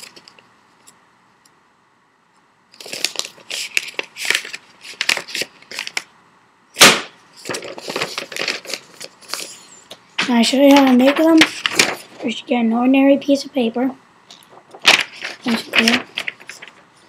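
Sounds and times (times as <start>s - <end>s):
paper rustling and crinkling: 2.7s - 6.1s, 7.4s - 9.6s, 10.2s - 12.4s, 14.3s - 16.9s
sharp paper snap: 6.8s - 8.8s, 14.7s - 16.7s.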